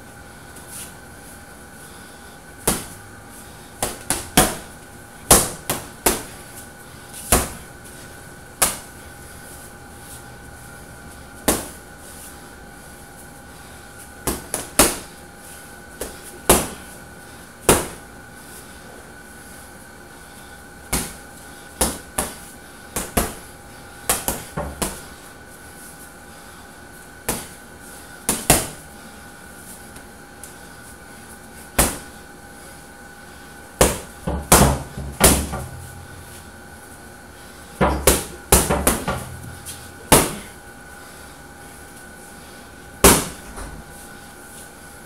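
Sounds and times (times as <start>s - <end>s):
punches thumping heavy bag: 33.8s - 35.9s, 37.8s - 40.5s, 43.0s - 43.4s.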